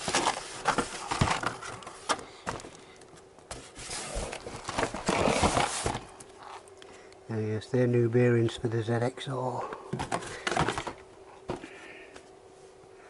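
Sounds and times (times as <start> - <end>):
cardboard and packaging rustling: 0.0 - 6.7, 9.9 - 11.7.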